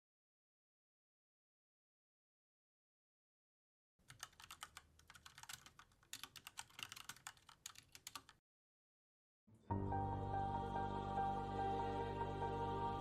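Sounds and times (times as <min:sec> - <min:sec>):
keyboard typing clicks: 0:04.1 - 0:08.4.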